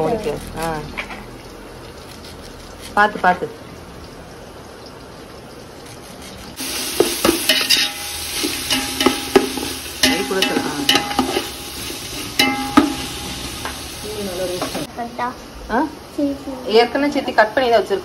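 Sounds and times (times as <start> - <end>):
onions sizzling in oil: 0.0 - 18.0
spoon scraping and knocking pan: 6.6 - 14.9.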